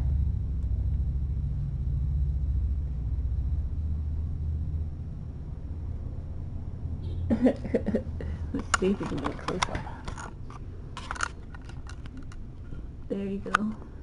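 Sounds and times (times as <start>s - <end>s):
steady low rumble: 0.0s - 14.0s
woman speaking: 8.6s - 10.0s, 13.1s - 13.9s.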